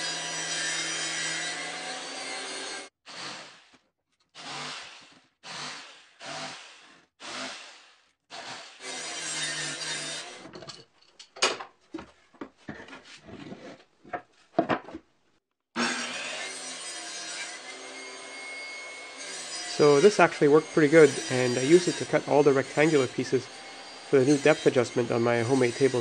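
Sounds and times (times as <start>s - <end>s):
circular saw cutting plywood: 0.0s - 10.5s, 15.8s - 26.0s
wooden knocks and clacks: 14.0s - 15.1s.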